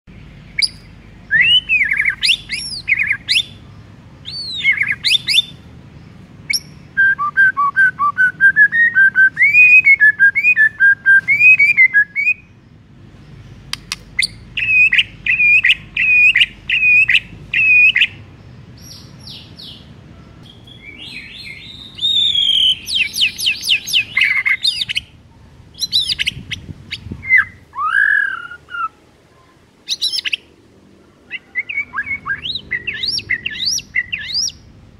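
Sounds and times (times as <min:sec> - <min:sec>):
bird singing varied whistles: 0:00.6 - 0:03.6, 0:04.2 - 0:05.6, 0:06.5 - 0:12.5, 0:14.2 - 0:18.2, 0:20.5 - 0:25.1, 0:25.8 - 0:29.0, 0:29.9 - 0:30.5, 0:31.3 - 0:34.6.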